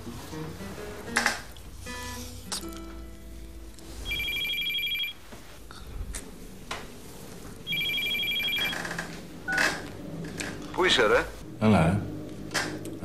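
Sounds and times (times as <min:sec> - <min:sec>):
telephone ringing: 0:04.0 - 0:05.2, 0:07.7 - 0:09.7.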